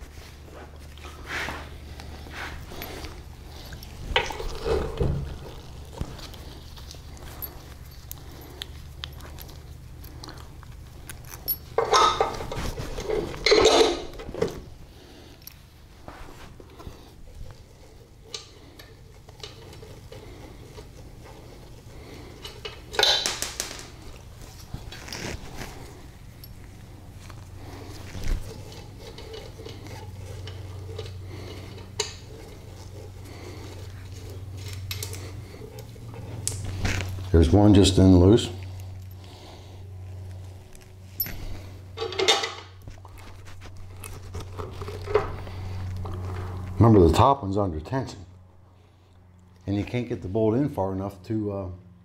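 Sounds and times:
steady low hum: 0:00.0 - 0:52.0
metal parts clinking and scraping: 0:10.3 - 0:14.6, 0:22.2 - 0:33.2, 0:40.3 - 0:46.8
metal parts clinking and tapping: 0:11.1 - 0:14.5, 0:22.4 - 0:24.0, 0:41.2 - 0:42.8.

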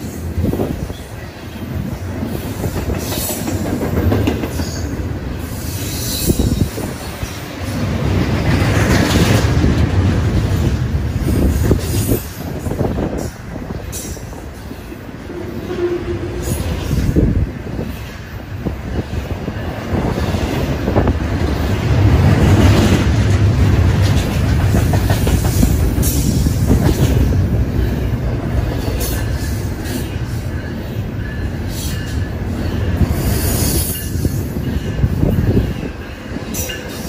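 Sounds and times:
steel wheels rumbling on rail: 0:00.0 - 0:37.0
wheels clicking over rail joints: 0:02.2 - 0:05.1, 0:06.5 - 0:14.4, 0:19.1 - 0:30.5.

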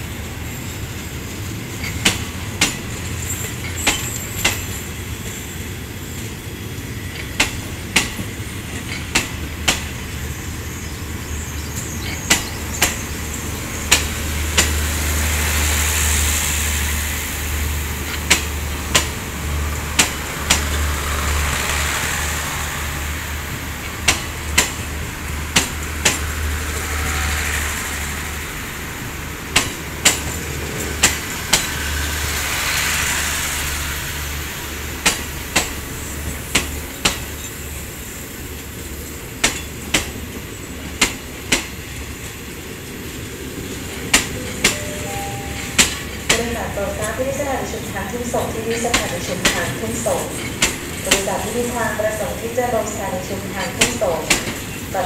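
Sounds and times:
train rolling rumble: 0:00.0 - 0:55.0
train wheels clicking over rail joint: 0:01.7 - 0:05.5, 0:06.2 - 0:10.1, 0:11.6 - 0:15.0, 0:18.0 - 0:19.2, 0:19.8 - 0:20.9, 0:23.8 - 0:24.9, 0:25.5 - 0:27.4, 0:29.5 - 0:32.2, 0:34.9 - 0:37.6, 0:38.8 - 0:42.4, 0:43.7 - 0:47.3, 0:48.4 - 0:51.3, 0:53.6 - 0:54.9.

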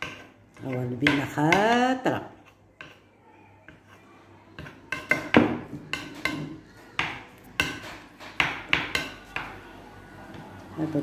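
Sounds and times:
spoons clinking against dishes: 0:00.0 - 0:02.0, 0:03.7 - 0:09.6.

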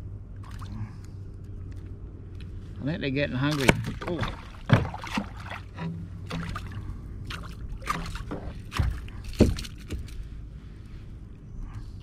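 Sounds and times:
water splashing: 0:03.4 - 0:10.2
knocks on kayak: 0:03.6 - 0:05.2.

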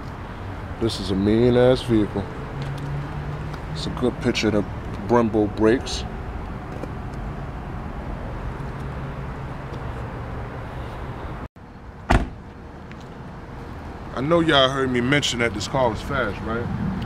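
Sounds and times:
car door latch click: 0:12.1 - 0:12.4.

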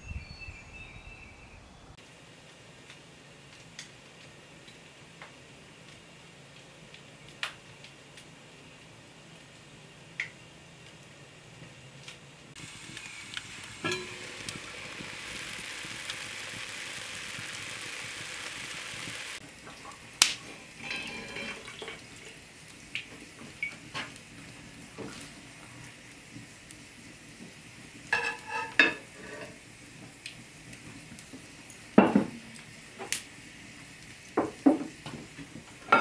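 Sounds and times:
pot bubbling: 0:12.6 - 0:36.0
utensil clinking against pot: 0:13.8 - 0:14.6, 0:20.8 - 0:22.0.

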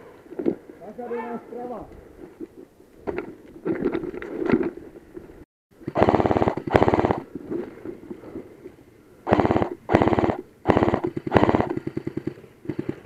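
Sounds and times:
airsoft rifle full-auto bursts: 0:05.8 - 0:07.3, 0:09.3 - 0:13.0.

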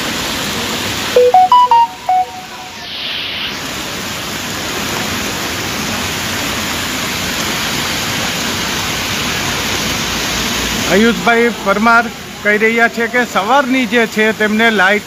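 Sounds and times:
heavy rain on pavement: 0:00.0 - 0:01.1, 0:03.6 - 0:15.0
short loud pitched tone: 0:01.2 - 0:03.4.

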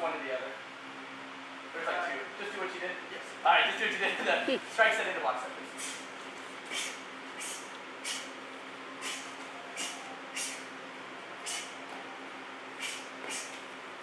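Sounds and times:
low room hum: 0:00.0 - 0:14.0
short sharp hisses: 0:05.8 - 0:06.1, 0:06.7 - 0:08.3, 0:09.0 - 0:10.7, 0:11.4 - 0:11.8, 0:12.8 - 0:13.6.

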